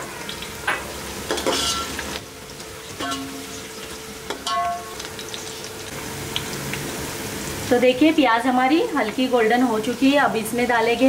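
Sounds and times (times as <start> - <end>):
onions sizzling in hot oil: 0.0 - 11.0
metal spoon clinking on pot: 1.3 - 1.9, 3.0 - 3.4, 4.4 - 4.9.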